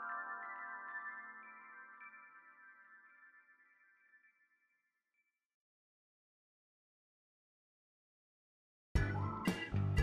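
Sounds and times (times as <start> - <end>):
background music: 0.0 - 3.4, 9.0 - 10.0.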